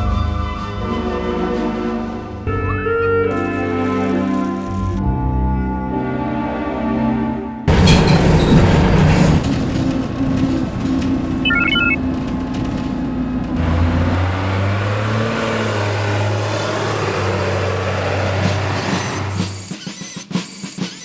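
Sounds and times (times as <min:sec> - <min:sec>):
bus engine and road noise: 0:00.0 - 0:21.0
short high beeps: 0:11.5 - 0:12.0.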